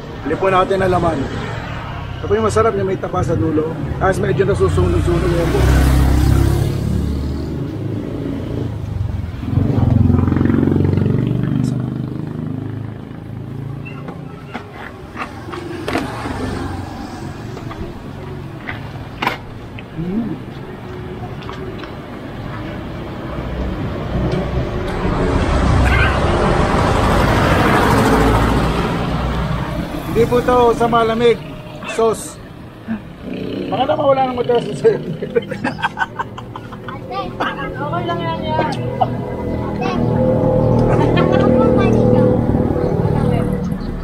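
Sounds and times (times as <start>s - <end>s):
vehicle engine passing by: 0.0s - 19.2s, 20.0s - 44.0s.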